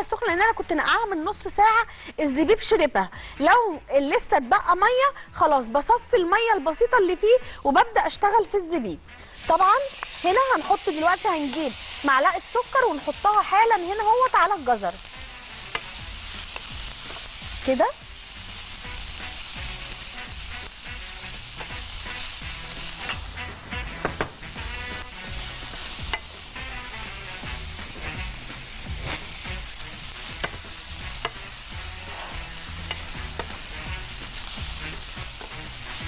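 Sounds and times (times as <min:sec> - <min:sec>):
food sizzling in frying pan: 0:09.1 - 0:36.0
spatula knocking pan: 0:30.3 - 0:31.5.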